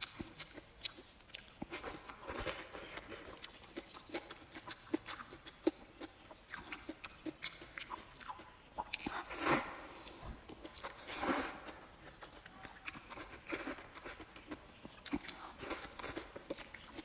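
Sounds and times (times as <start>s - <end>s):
chewing and lip-smacking: 0.0s - 17.0s
slurping noodles: 9.2s - 9.8s, 10.8s - 11.8s.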